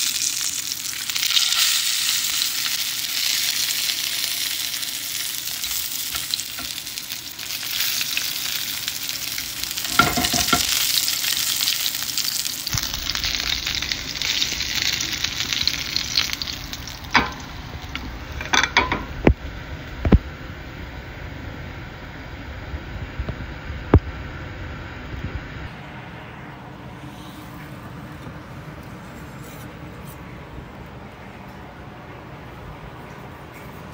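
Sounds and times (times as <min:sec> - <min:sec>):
steak sizzling in a frying pan: 0:00.0 - 0:19.3.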